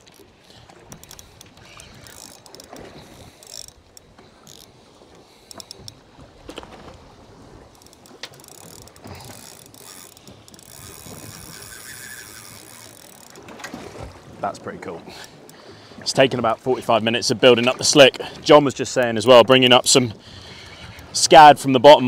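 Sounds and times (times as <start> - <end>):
fishing reel gears ratcheting: 0.9 - 4.8, 5.5 - 6.0, 7.7 - 13.4.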